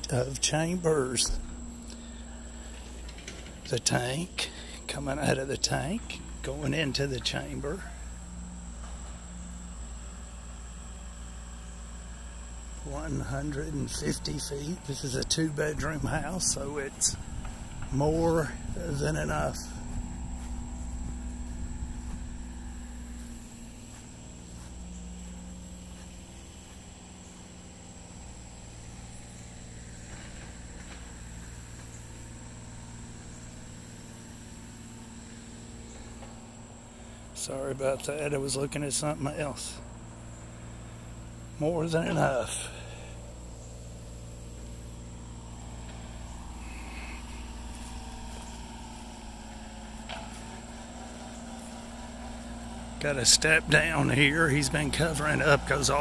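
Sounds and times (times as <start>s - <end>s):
engine running at low speed: 0.0s - 56.0s
high-pitched whine: 0.0s - 56.0s.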